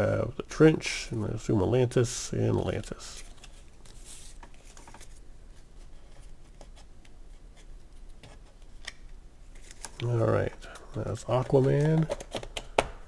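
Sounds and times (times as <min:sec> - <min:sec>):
cards rustling: 0:02.8 - 0:06.8, 0:07.9 - 0:12.8.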